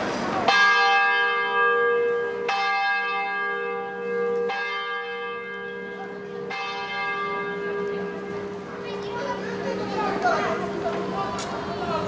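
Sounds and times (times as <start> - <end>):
bell tolling: 0.4 - 9.8.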